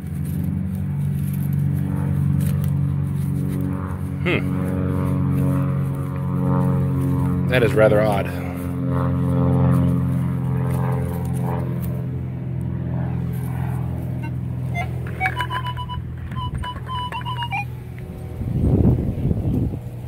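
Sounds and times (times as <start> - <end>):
steady low drone: 0.0 - 20.0
metal detector beeping: 14.2 - 17.8.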